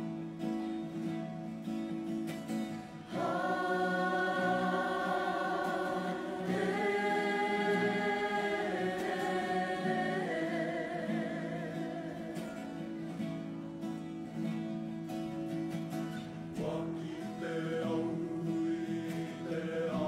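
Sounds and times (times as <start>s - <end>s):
strummed guitar: 0.0s - 20.0s
choir singing in harmony: 3.1s - 13.8s, 16.4s - 20.0s.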